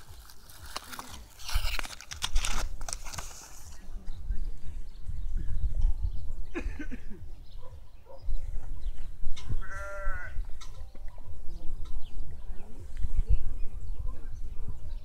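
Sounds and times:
farm animal bleating: 0:09.5 - 0:10.5.

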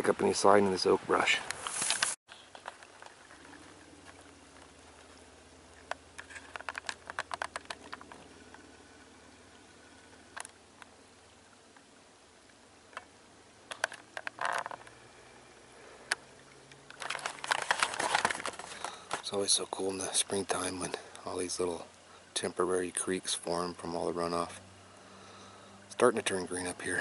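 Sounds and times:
footsteps crackling on twigs: 0:01.5 - 0:05.1, 0:16.9 - 0:19.4.

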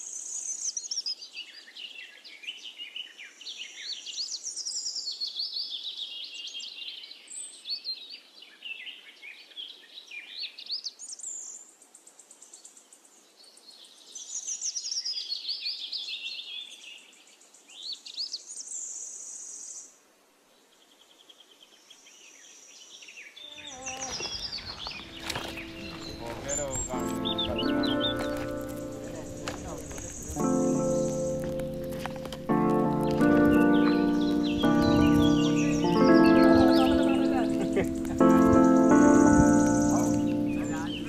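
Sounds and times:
birds singing and calling: 0:21.0 - 0:41.0.

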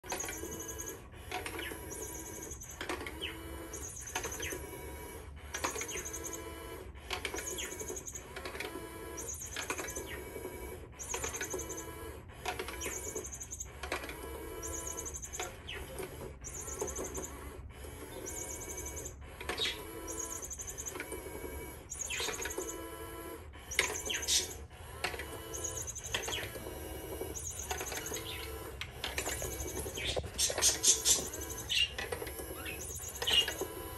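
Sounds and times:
toy motor whirring: 0:00.0 - 0:33.9.

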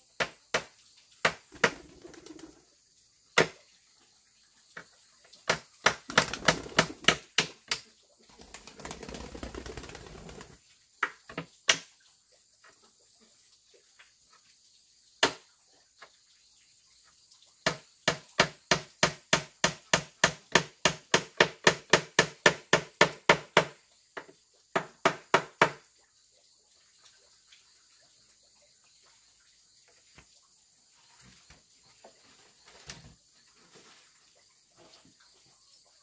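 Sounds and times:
insects trilling: 0:00.0 - 0:36.0
tool striking wood: 0:17.6 - 0:23.8, 0:24.7 - 0:25.8.

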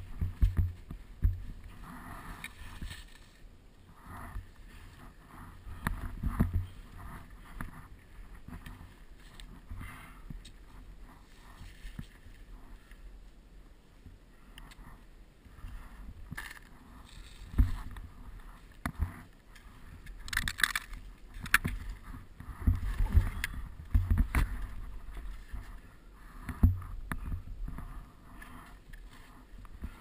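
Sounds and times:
wind on microphone: 0:21.0 - 0:25.9.

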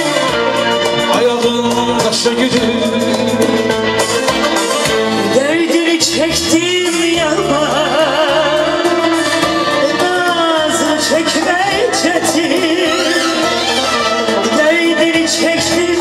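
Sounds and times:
live band music: 0:00.0 - 0:16.0
man singing: 0:00.8 - 0:16.0
woman singing: 0:05.4 - 0:16.0.

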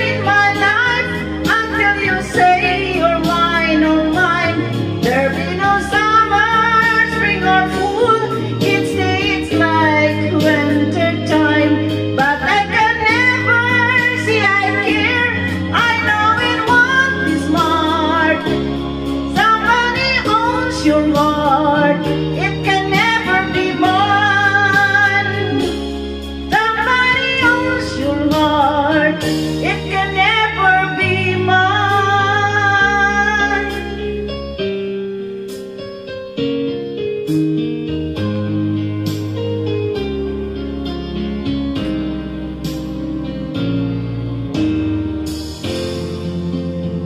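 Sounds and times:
woman singing into a microphone: 0:00.0 - 0:34.9
backing music: 0:00.0 - 0:47.0.

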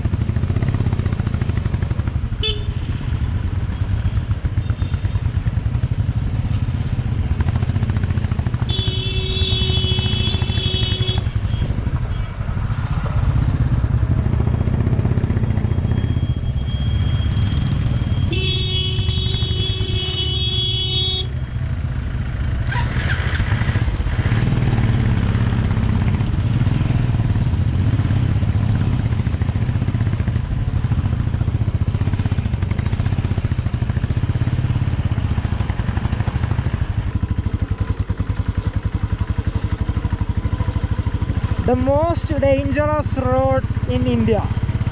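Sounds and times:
motorcycle engine running: 0:00.0 - 0:44.9
vehicle horn blast: 0:02.4 - 0:03.0, 0:08.6 - 0:12.3, 0:18.2 - 0:21.4.

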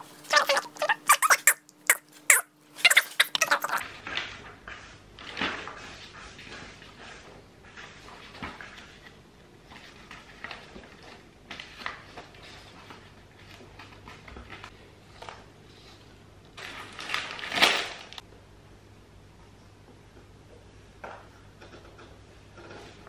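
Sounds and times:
paper rustling: 0:02.8 - 0:16.0
paper bag crinkling: 0:16.6 - 0:18.2.

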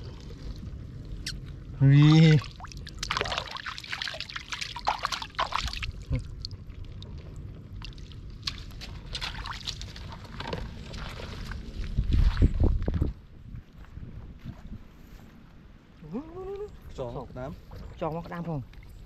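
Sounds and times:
shallow water sloshing and splashing: 0:02.0 - 0:13.1.

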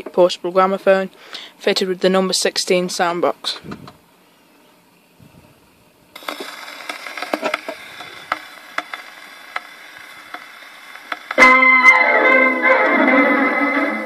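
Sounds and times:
record surface hiss and crackles: 0:00.0 - 0:14.0
gramophone needle dropping on record: 0:06.1 - 0:14.0.

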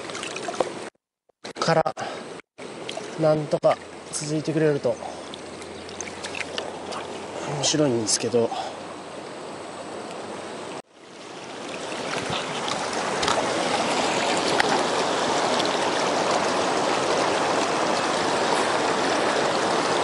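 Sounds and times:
river rapids rushing: 0:11.2 - 0:20.0.

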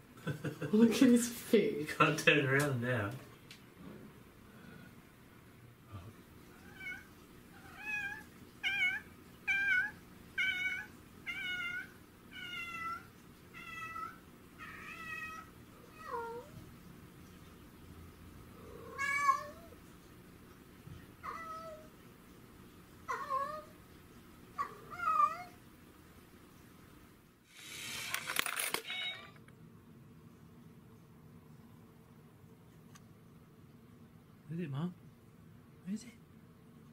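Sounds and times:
cat meowing: 0:06.6 - 0:16.6, 0:18.6 - 0:19.8, 0:24.6 - 0:25.6.

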